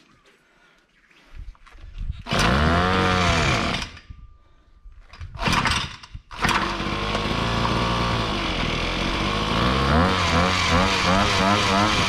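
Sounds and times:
small engine sputtering and starting: 2.2 - 4.1, 5.4 - 12.0.

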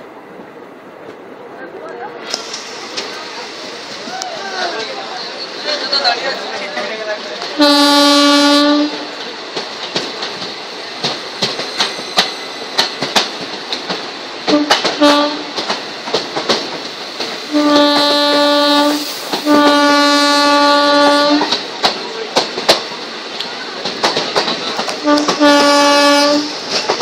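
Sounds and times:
train rushing past: 0.0 - 27.0
train horn: 7.6 - 9.1, 14.5 - 15.5, 17.5 - 21.6, 25.0 - 26.6
wheels clacking over rail joints: 8.2 - 27.0.

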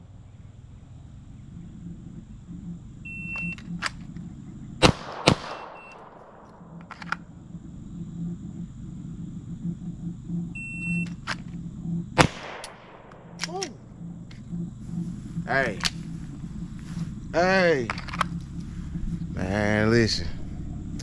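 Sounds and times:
short beep: 3.1 - 3.6, 10.6 - 11.1
distant gunshots: 3.2 - 7.3, 12.1 - 14.0
pistol shots with echo: 4.8 - 7.0, 12.2 - 13.5.

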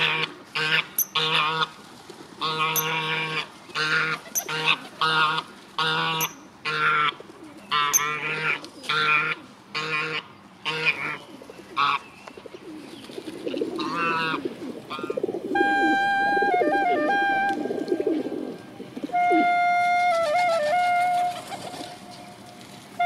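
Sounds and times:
goose honking: 0.0 - 1.7, 2.4 - 11.2, 13.8 - 22.3.

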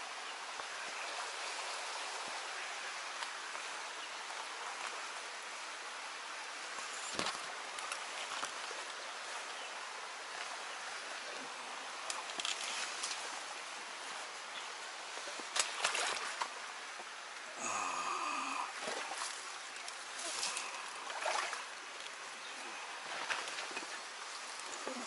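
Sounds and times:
stream flowing: 0.0 - 25.0
rustles and clicks: 6.8 - 9.5.

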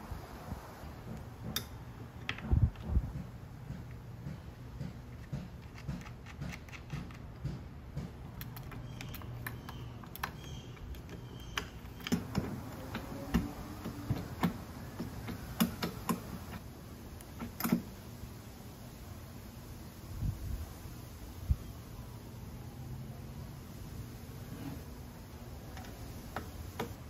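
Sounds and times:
nut threading metallic clicks: 8.3 - 16.6.

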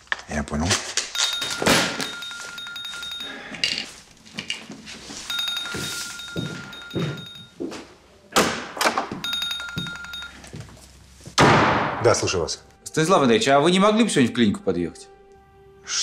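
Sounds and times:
mobile phone buzzing ringtone: 1.2 - 3.6, 5.2 - 7.6, 9.1 - 10.6.

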